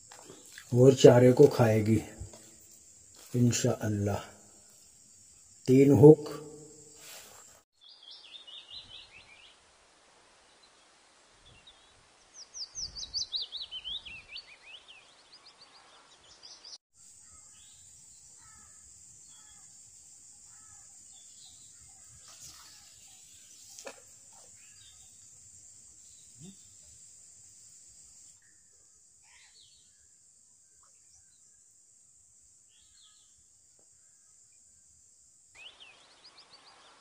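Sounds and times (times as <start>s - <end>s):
high insect drone: 0.0s - 7.6s, 17.0s - 37.0s
faint bird chirps: 11.4s - 19.7s, 20.5s - 27.0s, 28.4s - 31.7s, 32.7s - 34.7s, 35.5s - 37.0s.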